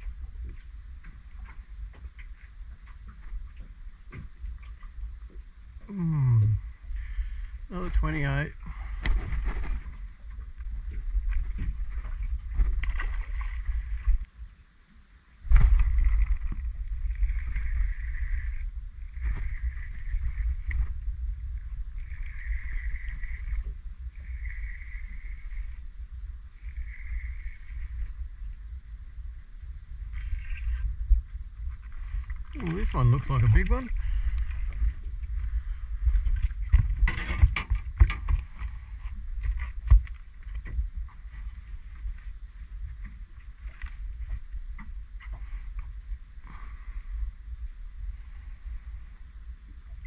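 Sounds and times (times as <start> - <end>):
wind buffeting microphone: 15.4 - 50.0
water hissing along a hull: 22.0 - 25.8.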